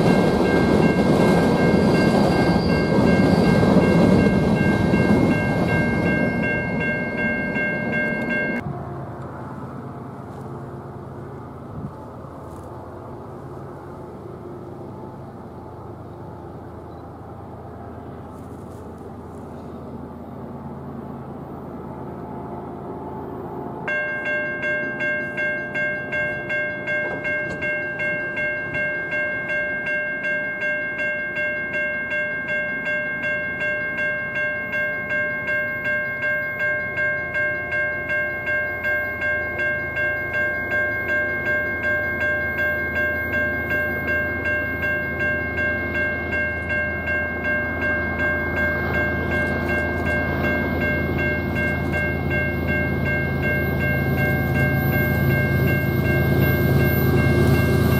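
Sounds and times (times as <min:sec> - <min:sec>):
railroad crossing bell ringing: 0:00.0 - 0:08.7, 0:20.6 - 0:57.9
train rumble: 0:00.0 - 0:57.9.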